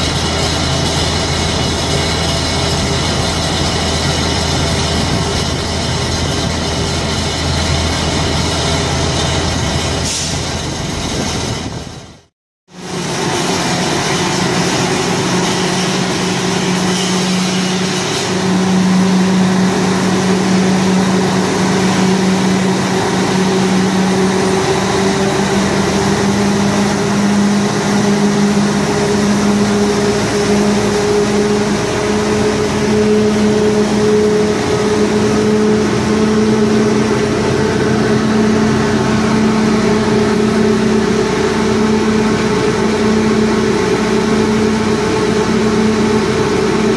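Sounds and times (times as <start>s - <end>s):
truck engine drone rising in pitch: 0.0s - 46.9s.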